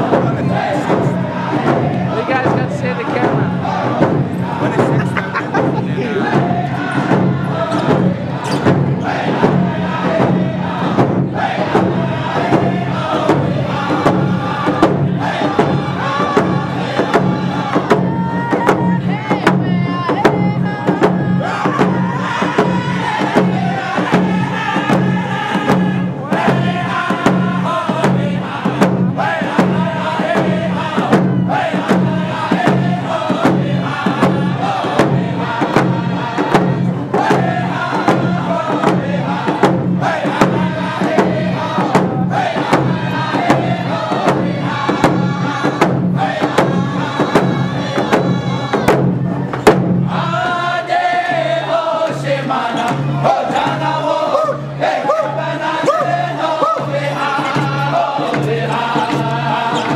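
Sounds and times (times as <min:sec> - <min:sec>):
hand drums beating: 0:00.0 - 0:50.9, 0:52.8 - 0:59.9
singers chanting in unison: 0:00.0 - 0:59.9.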